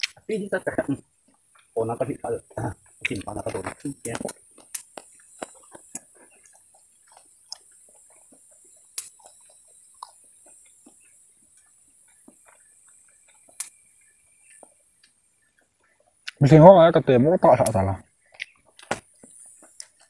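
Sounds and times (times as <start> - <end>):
faint high hiss: 0.0 - 20.0
chewing corn on the cob: 1.2 - 1.8, 2.8 - 16.4, 18.3 - 20.0
sharp snaps: 2.9 - 7.7, 8.9 - 9.3, 11.6 - 13.8, 16.2 - 16.4, 17.6 - 20.0.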